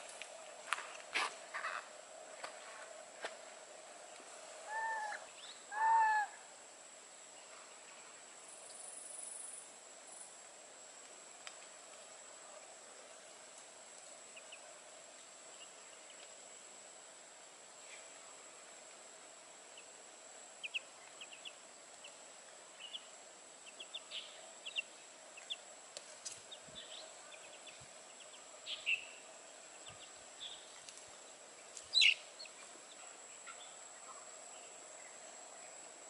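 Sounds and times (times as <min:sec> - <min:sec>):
steady hiss: 0:00.0 - 0:36.0
birds chirping: 0:31.6 - 0:35.2.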